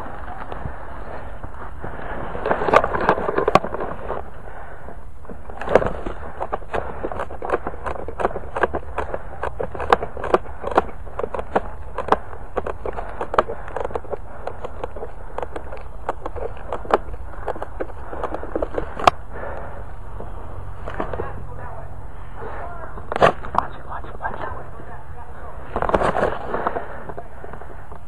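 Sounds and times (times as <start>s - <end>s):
branches and leaves crackling: 0.0s - 28.0s.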